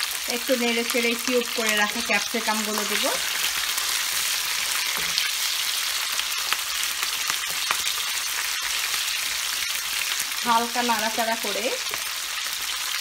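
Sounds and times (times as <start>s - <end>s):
vegetables sizzling in oil: 0.0s - 13.0s
spatula scraping pan: 2.7s - 5.7s.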